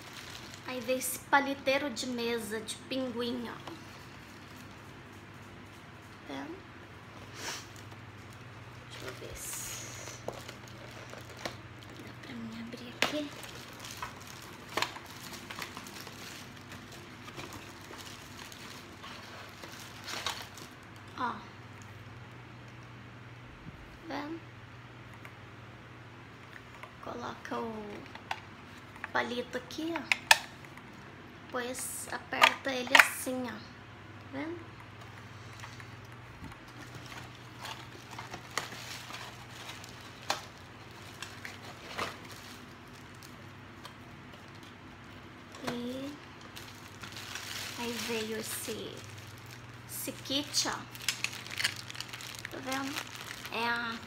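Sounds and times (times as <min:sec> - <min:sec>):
plastic packaging rustling: 0:00.0 - 0:06.1, 0:07.0 - 0:21.1, 0:34.9 - 0:54.0
fan humming: 0:00.0 - 0:54.0.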